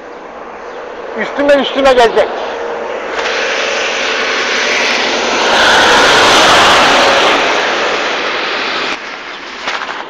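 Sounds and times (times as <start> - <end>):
aircraft engine roar: 0.0 - 10.0.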